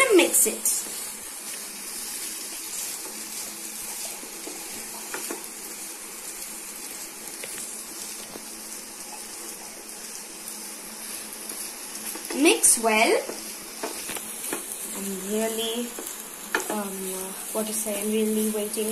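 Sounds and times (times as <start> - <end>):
food sizzling in a frying pan: 0.0 - 18.9
spatula tapping and scraping: 4.0 - 5.5, 11.5 - 12.5, 13.2 - 14.8, 15.9 - 16.8.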